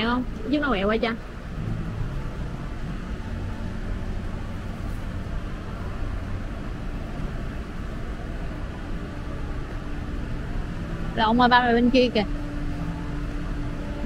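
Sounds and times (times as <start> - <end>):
murmur of distant voices: 0.0 - 14.0.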